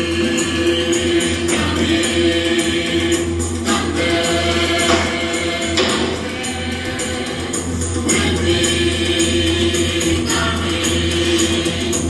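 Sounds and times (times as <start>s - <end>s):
singing over a steady beat: 0.0s - 12.0s.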